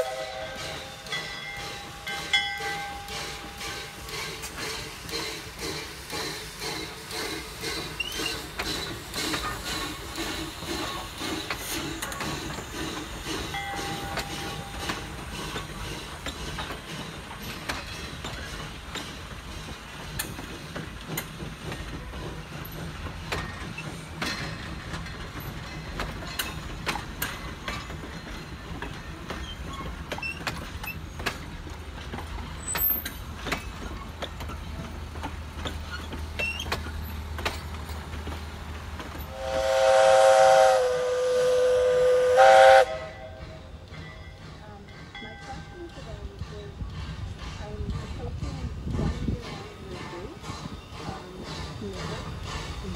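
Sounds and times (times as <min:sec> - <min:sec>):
steam whistle blast: 0:00.0 - 0:01.0, 0:39.3 - 0:43.4
train coaches rumbling past: 0:00.0 - 0:52.9
wheels clicking over rail joints: 0:00.6 - 0:39.4.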